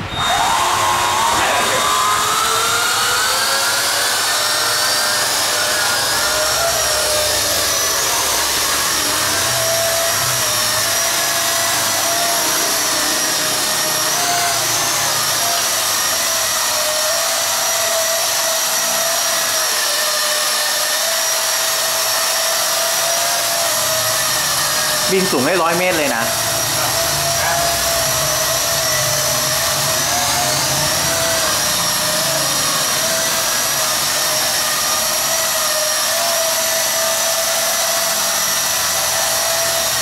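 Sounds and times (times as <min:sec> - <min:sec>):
drone propellers whining: 0:00.0 - 0:40.0.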